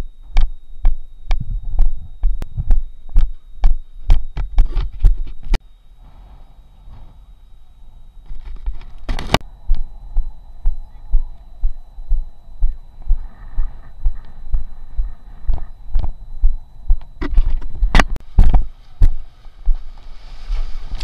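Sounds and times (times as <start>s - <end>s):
muffled footsteps on sand: 18.4s - 21.0s.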